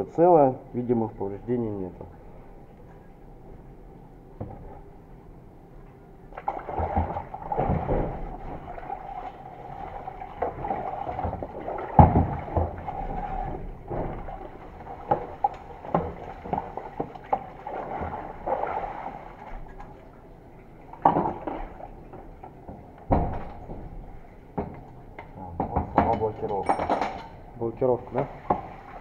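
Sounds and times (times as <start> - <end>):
liquid sloshing and splashing: 6.3 - 24.7, 28.1 - 29.0
metal knocking against tub: 25.6 - 27.2.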